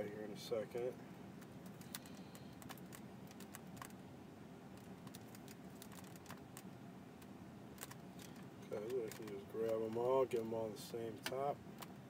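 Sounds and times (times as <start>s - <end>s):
low steady hum: 0.0s - 12.0s
keyboard and mouse clicking: 1.6s - 3.9s.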